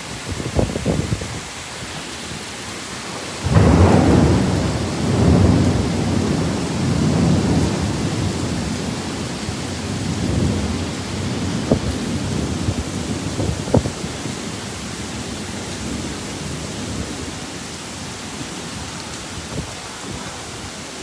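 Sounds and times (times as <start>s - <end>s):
heavy rain: 0.0s - 21.0s
thunderclap rumbling: 3.4s - 17.4s.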